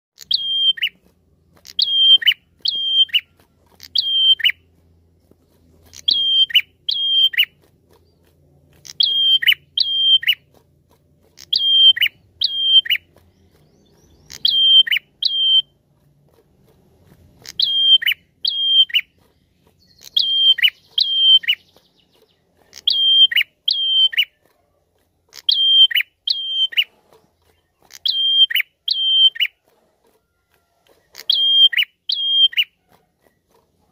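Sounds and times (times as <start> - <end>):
bird calling in paired notes: 0.2 - 4.6, 5.9 - 7.6, 8.8 - 10.5, 11.4 - 15.8, 17.4 - 24.4, 25.3 - 29.6, 31.1 - 32.8.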